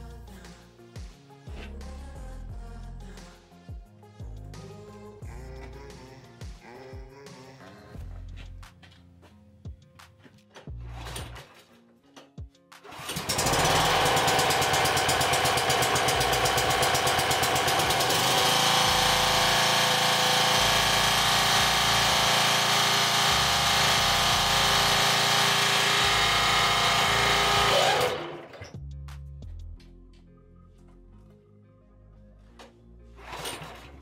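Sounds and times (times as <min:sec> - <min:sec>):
background music: 0:00.0 - 0:13.5, 0:26.0 - 0:34.0
lawn mower engine running: 0:12.9 - 0:28.6.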